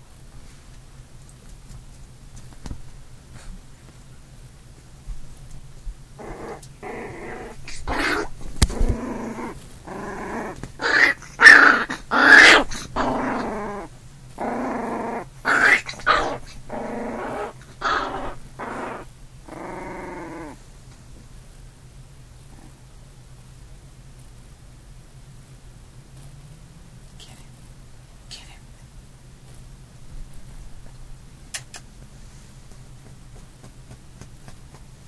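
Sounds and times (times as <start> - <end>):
puppy growling and snarling: 6.2 - 20.7, 22.4 - 22.9.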